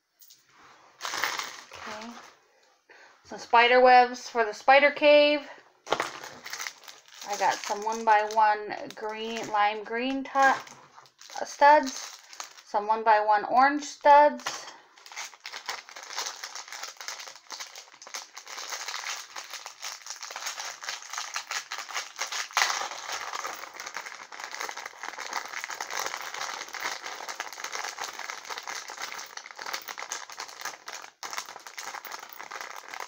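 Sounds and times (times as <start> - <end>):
small plastic pieces rattling: 1.0 - 2.0, 5.9 - 9.6, 10.4 - 12.7, 14.4 - 33.0
plastic bags crinkling: 1.0 - 2.4, 5.8 - 12.7, 14.4 - 33.0.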